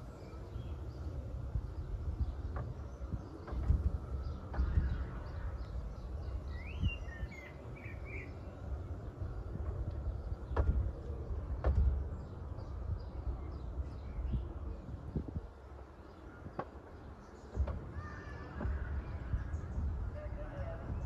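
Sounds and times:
bird chirping: 0.0 - 21.0
steady low rumble: 0.0 - 21.0
sharp knocks: 10.5 - 10.9, 11.5 - 12.0.

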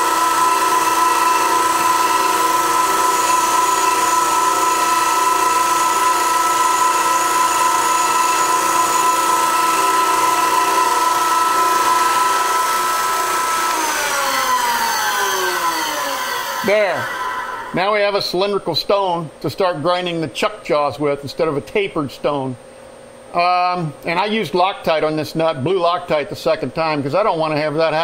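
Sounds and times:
grinder high-pitched whine: 0.0 - 18.6.

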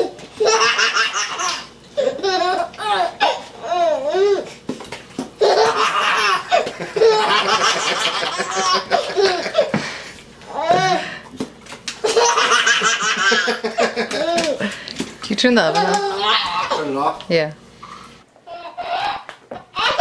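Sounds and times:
baby laughing: 0.0 - 4.5, 5.4 - 9.8, 12.0 - 14.6, 15.7 - 16.9, 18.5 - 20.0.

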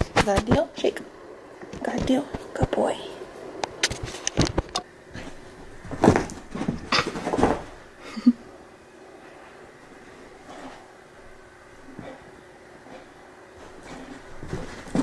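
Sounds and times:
dog scrambling on carpet: 5.2 - 7.8, 13.6 - 15.0.

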